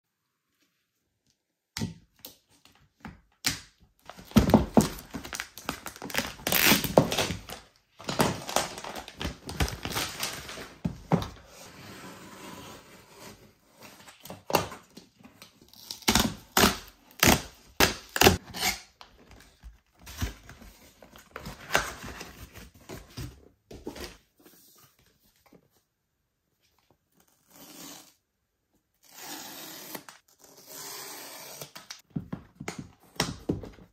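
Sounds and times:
cardboard tearing and crinkling: 4.1s - 11.0s.

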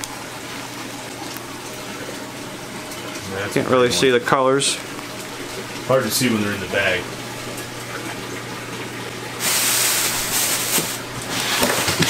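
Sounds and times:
aquarium equipment humming: 0.0s - 12.0s
bags rustling in styrofoam box: 9.4s - 12.0s.

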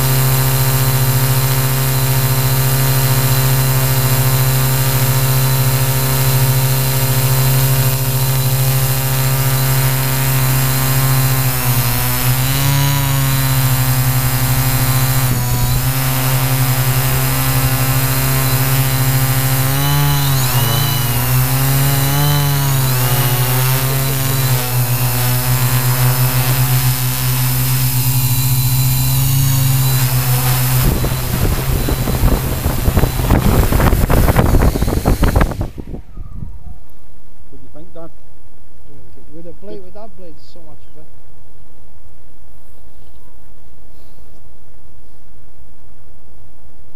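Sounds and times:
drone motors humming: 0.0s - 37.6s
drone landing in grass: 29.9s - 36.1s.

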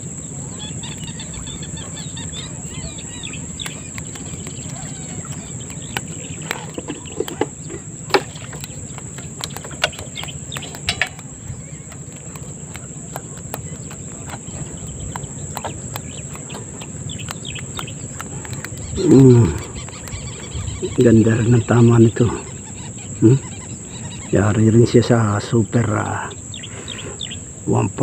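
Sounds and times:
high-pitched insect chorus: 0.0s - 28.0s
low outdoor rumble: 0.0s - 28.0s
sharp clicks and knocks: 3.6s - 20.4s.

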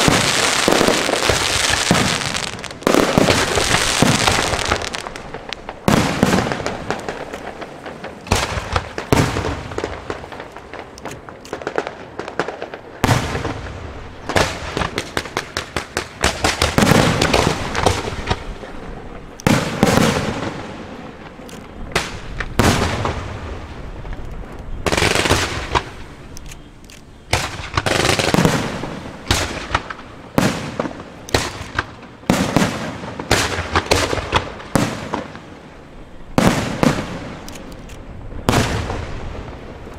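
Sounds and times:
firework shells bursting: 0.0s - 13.6s.

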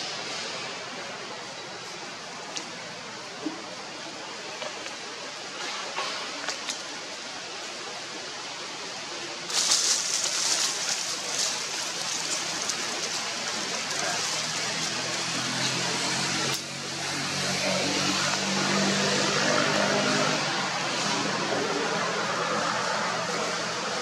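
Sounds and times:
outdoor hiss: 0.0s - 21.0s.

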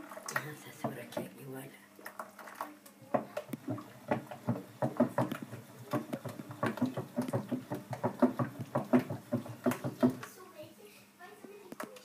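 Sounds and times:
whisk beating batter in bowl: 2.1s - 10.3s.

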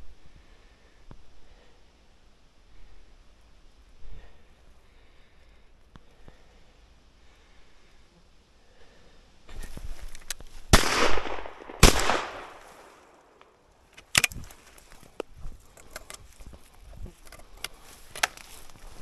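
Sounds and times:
clicks and rustles: 9.5s - 10.7s, 13.4s - 19.0s
shotgun shots with echo: 10.7s - 13.0s.

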